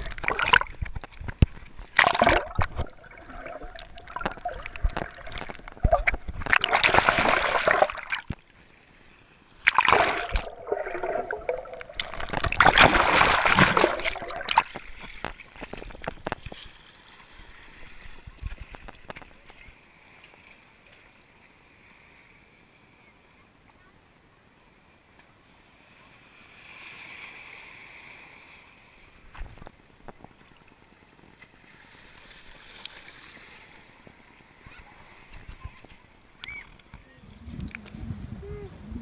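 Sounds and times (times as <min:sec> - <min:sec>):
water splashing and sloshing: 0:00.0 - 0:21.5, 0:28.9 - 0:37.9.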